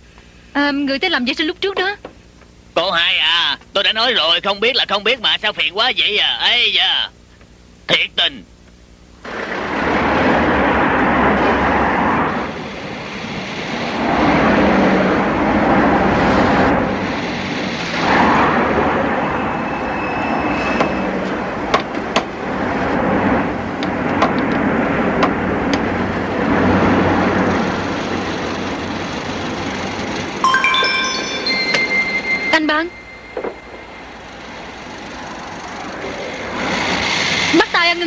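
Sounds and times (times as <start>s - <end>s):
vehicles driving past: 9.2s - 37.7s.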